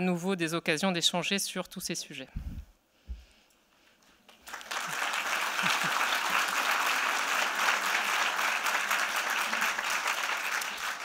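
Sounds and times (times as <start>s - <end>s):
audience applause: 4.4s - 11.0s.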